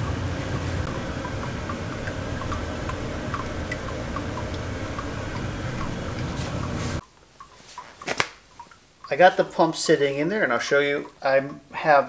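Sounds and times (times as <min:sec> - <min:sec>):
steady low rumble: 0:00.0 - 0:07.0
water dripping: 0:00.8 - 0:11.8.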